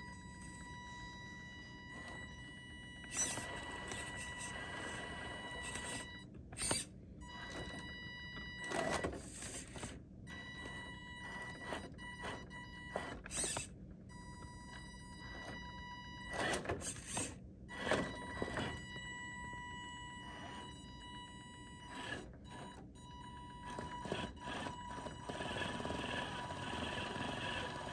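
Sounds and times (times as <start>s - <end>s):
electric motor whining: 0.0s - 8.0s, 10.6s - 13.7s, 15.1s - 19.0s, 21.8s - 27.9s.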